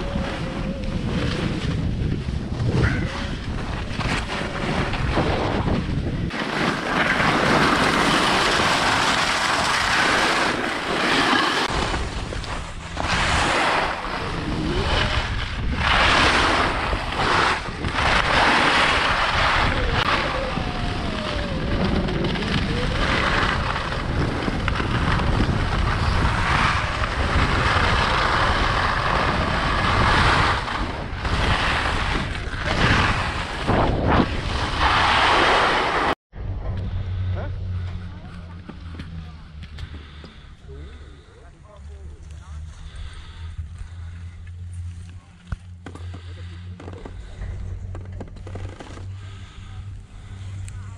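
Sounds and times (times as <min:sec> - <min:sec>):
wind buffeting microphone: 0:00.0 - 0:06.4, 0:11.6 - 0:35.6
skis carving across snow: 0:00.0 - 0:36.2.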